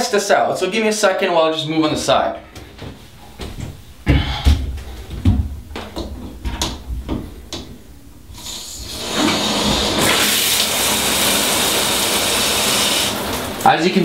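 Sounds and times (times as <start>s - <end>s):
shower water spraying: 8.3s - 13.7s.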